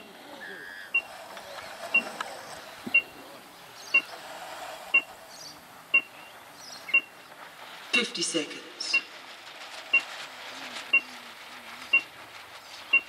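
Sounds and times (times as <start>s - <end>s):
electronic timer beeping: 0.0s - 1.1s, 1.9s - 2.2s, 2.8s - 3.2s, 3.9s - 4.1s, 5.9s - 6.2s, 6.9s - 7.1s.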